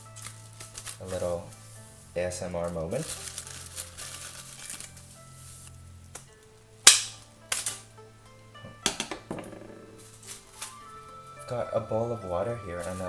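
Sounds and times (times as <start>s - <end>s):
dried leaves rustling and crackling: 0.0s - 6.4s, 10.0s - 13.0s.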